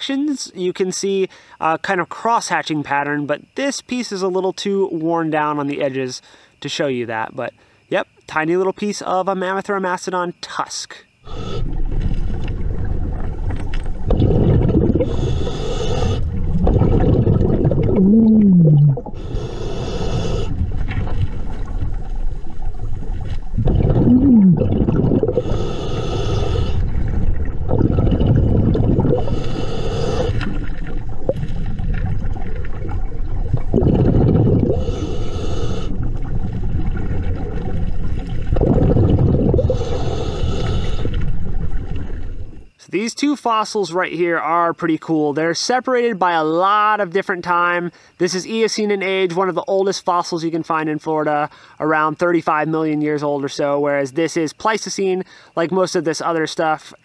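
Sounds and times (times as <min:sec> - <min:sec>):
regulator breathing hiss: 0:11.2 - 0:11.8, 0:15.0 - 0:16.4, 0:19.1 - 0:20.6, 0:25.4 - 0:27.1, 0:29.1 - 0:30.6, 0:34.7 - 0:36.0, 0:39.6 - 0:41.3
low bubbling rumble: 0:11.5 - 0:42.8.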